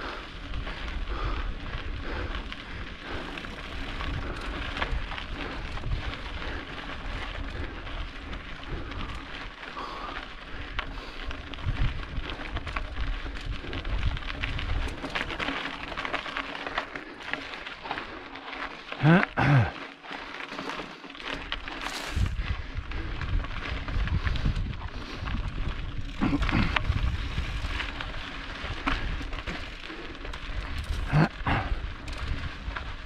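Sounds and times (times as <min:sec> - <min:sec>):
wind rumble on microphone: 0:00.0 - 0:16.2, 0:21.3 - 0:33.0
bike tyres crunching on gravel: 0:00.0 - 0:33.0.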